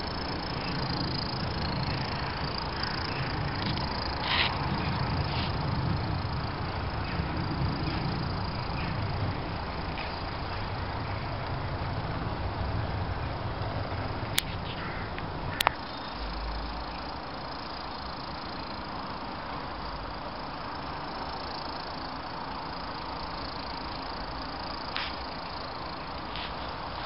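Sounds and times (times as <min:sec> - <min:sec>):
outdoor hiss: 0:00.0 - 0:12.8, 0:13.6 - 0:27.0
model train rumbling: 0:00.0 - 0:27.0.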